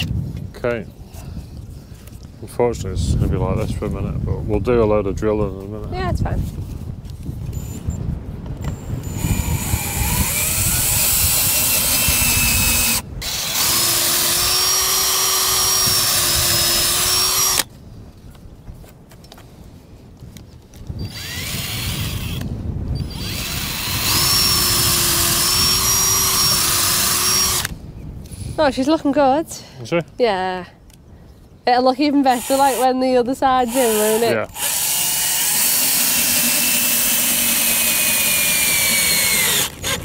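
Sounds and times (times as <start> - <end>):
cordless drill boring wood: 9.0 - 17.7, 21.0 - 27.7, 32.2 - 40.0.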